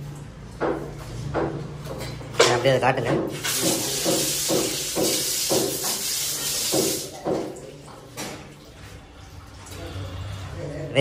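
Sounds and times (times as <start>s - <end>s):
water jet splashing: 3.3s - 9.7s.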